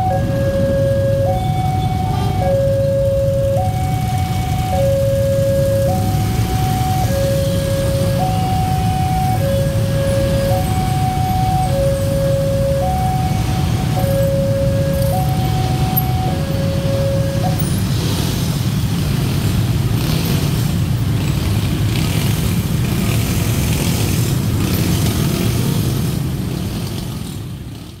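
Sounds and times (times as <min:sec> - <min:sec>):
two-tone crossing alarm: 0:00.0 - 0:17.9
motorcycle engines running: 0:00.0 - 0:28.0.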